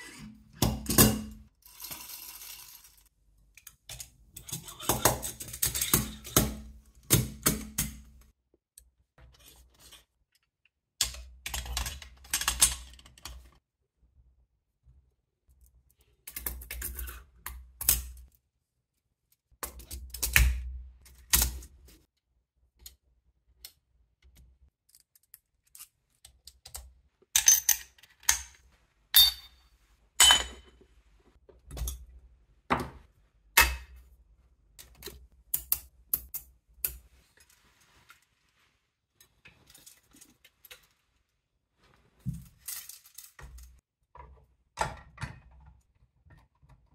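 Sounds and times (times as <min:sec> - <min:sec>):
metal parts clicking and clinking: 0:42.4 - 0:43.8.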